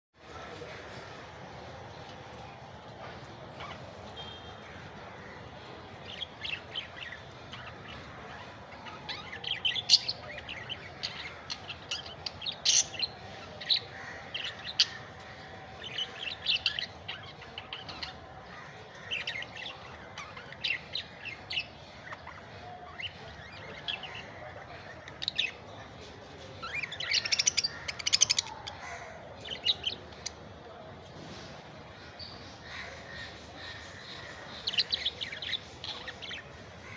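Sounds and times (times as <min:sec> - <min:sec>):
budgerigars chirping: 0:06.0 - 0:18.2, 0:26.6 - 0:28.6.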